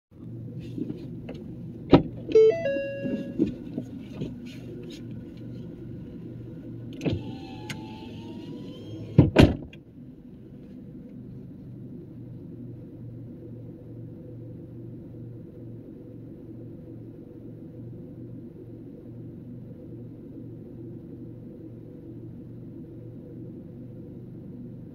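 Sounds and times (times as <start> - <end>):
low pulsing hum: 0.1 - 24.9.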